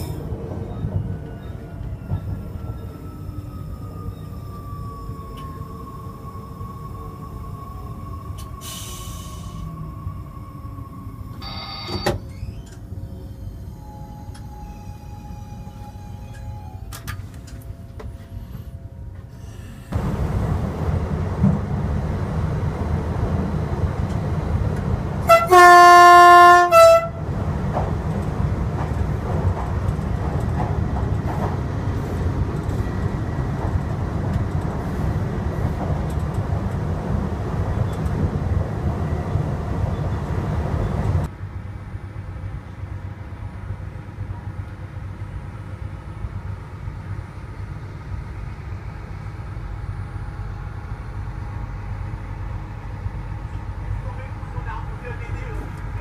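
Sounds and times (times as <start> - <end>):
low rumble of train cab: 0.0 - 56.0
train horn blast: 25.2 - 27.2.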